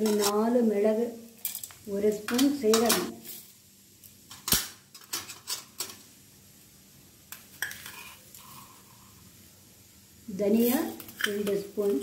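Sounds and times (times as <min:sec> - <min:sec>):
spoon and tins clinking: 0:11.0 - 0:12.0.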